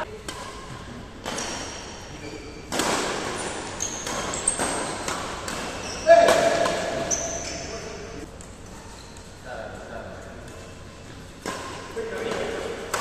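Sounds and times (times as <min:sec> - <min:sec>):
shoes squeaking on court: 0:00.0 - 0:09.4
rackets hitting shuttlecock: 0:00.1 - 0:08.6, 0:11.3 - 0:13.0.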